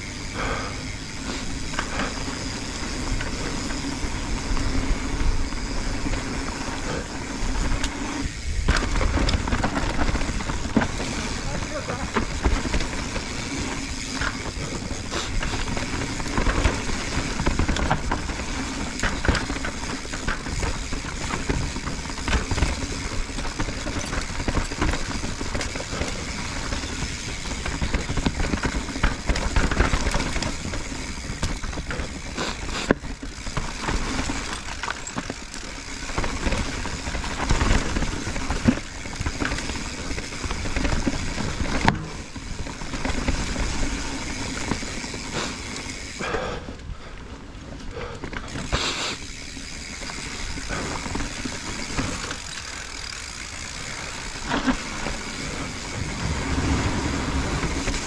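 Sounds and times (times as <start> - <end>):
tyres rolling over dirt and stones: 0.0 - 46.3, 47.4 - 58.0
bike knocking and rattling: 0.0 - 58.0
rushing wind noise: 54.9 - 58.0.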